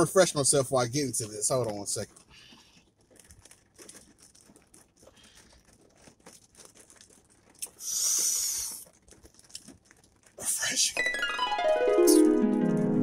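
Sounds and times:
crackling clicks of plastic cup: 1.2s - 10.4s
sipping through a straw: 7.5s - 9.7s
loud breathy hiss: 7.7s - 8.8s.

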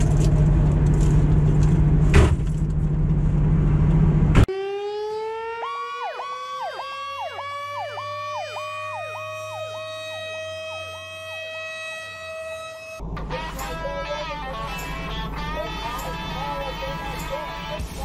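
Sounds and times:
fire truck engine noise: 0.0s - 18.0s
electronic siren yelping: 4.5s - 14.9s
mechanical siren wail: 4.5s - 17.8s.

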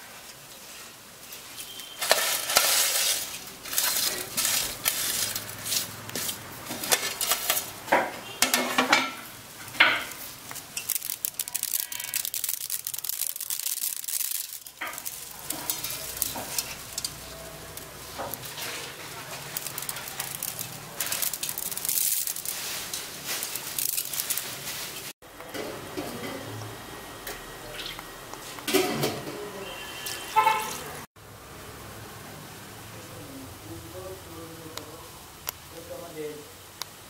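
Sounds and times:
noodles rustling: 0.3s - 7.9s, 9.6s - 25.2s
dry noodles crackling and snapping: 1.4s - 7.8s, 9.7s - 25.2s.

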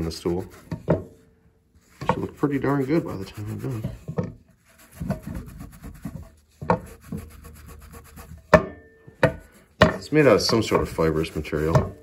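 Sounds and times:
wet napkin scrubbing a seat: 1.8s - 8.3s, 10.8s - 11.7s.

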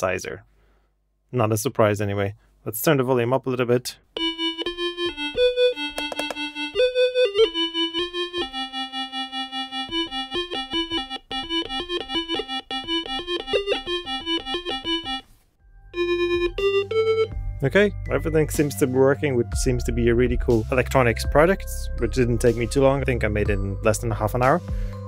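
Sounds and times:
buzzy synthesizer melody: 4.2s - 20.6s.

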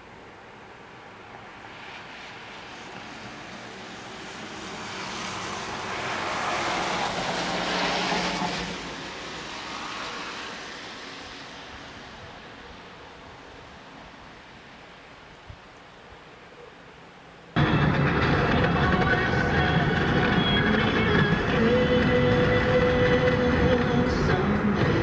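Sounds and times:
low engine hum: 0.0s - 15.6s, 17.6s - 25.0s
vehicle passing by: 1.0s - 14.8s.

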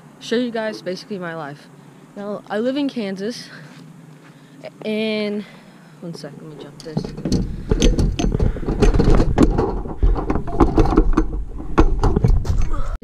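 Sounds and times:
knocks and bumps on microphone: 6.2s - 12.8s.

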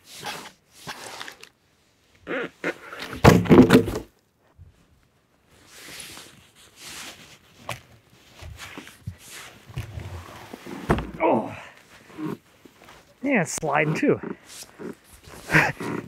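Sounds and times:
heavy thunk: 3.2s - 4.1s, 10.9s - 11.2s.

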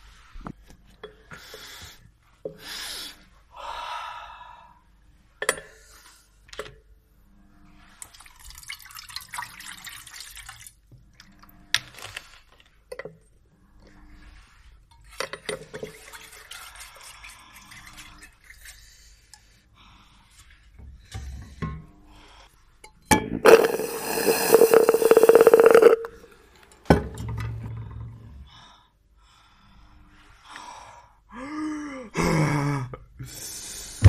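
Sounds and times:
water pouring into metal pot: 8.1s - 10.8s, 23.4s - 26.2s.

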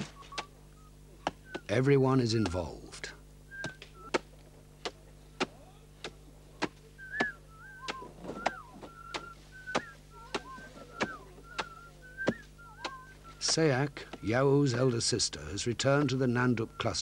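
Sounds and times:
sharp chopping knocks: 3.6s - 14.2s.

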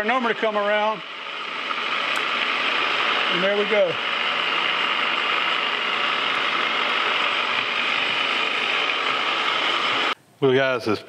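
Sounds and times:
metal lathe whirring: 0.0s - 10.2s.

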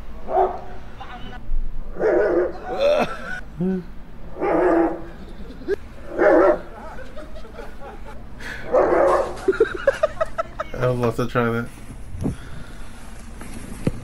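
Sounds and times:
dog barking: 0.3s - 0.8s, 1.9s - 2.6s, 4.3s - 5.2s, 6.1s - 6.8s, 8.7s - 9.5s.

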